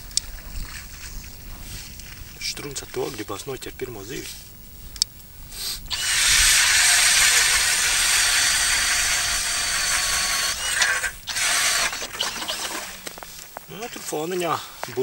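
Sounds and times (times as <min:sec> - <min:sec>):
ice auger drill whirring: 0:05.9 - 0:13.5.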